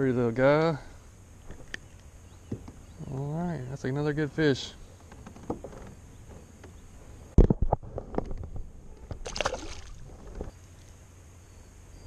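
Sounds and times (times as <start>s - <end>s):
short water splash: 9.2s - 10.2s.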